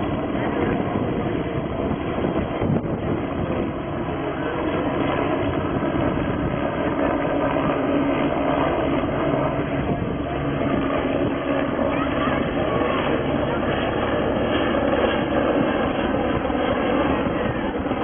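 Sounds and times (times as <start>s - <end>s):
helicopter hovering: 0.0s - 18.0s.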